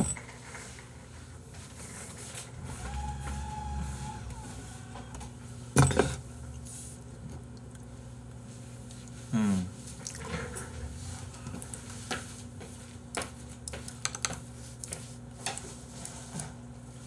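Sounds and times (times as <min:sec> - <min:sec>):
low hum: 0:02.6 - 0:05.6
short sound falling in pitch: 0:02.8 - 0:05.3.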